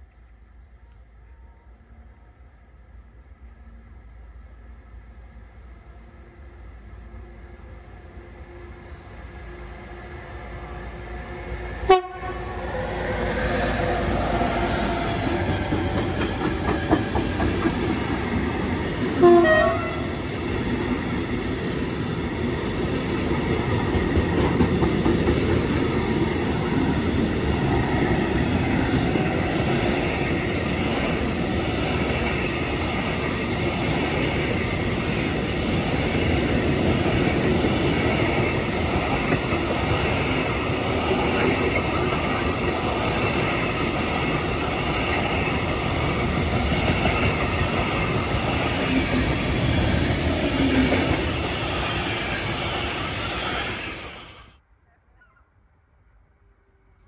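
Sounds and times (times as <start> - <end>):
freight train wheels rumbling: 3.4 - 54.6
clickety-clack over rail joints: 14.2 - 53.6.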